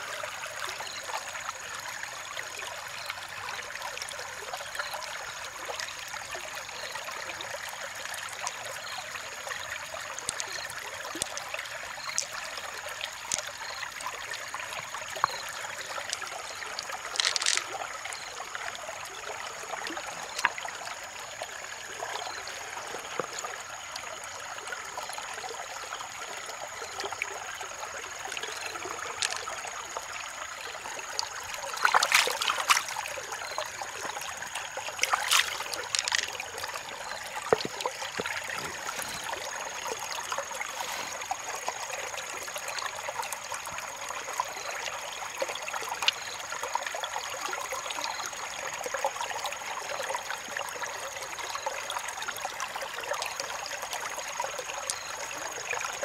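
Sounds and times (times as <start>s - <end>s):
stream trickling over rocks: 0.0s - 56.0s.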